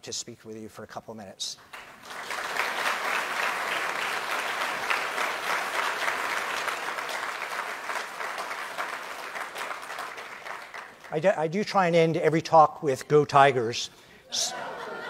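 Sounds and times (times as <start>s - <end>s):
audience applauding: 1.7s - 11.2s.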